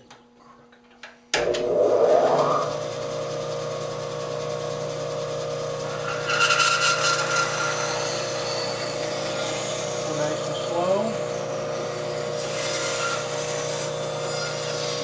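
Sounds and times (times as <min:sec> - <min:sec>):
bandsaw motor hum: 0:01.4 - 0:15.0
bandsaw blade cutting wood: 0:05.8 - 0:15.0.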